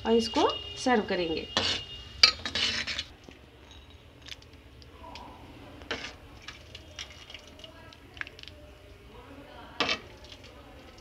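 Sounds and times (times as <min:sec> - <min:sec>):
soup pouring into bowl: 0:06.0 - 0:11.0.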